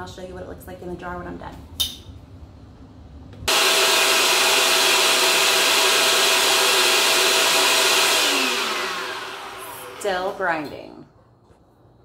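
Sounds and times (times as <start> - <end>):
blender grinding grain: 3.5 - 10.9.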